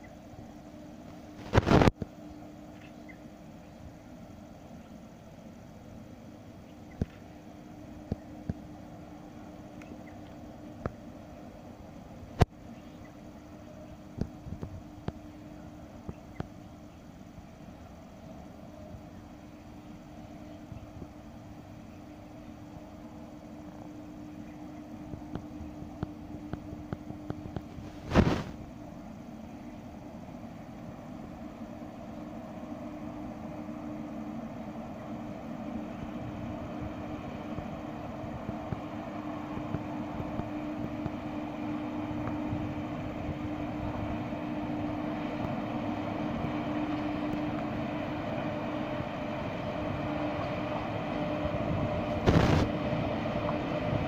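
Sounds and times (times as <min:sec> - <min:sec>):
electric locomotives humming: 0:00.0 - 0:54.0.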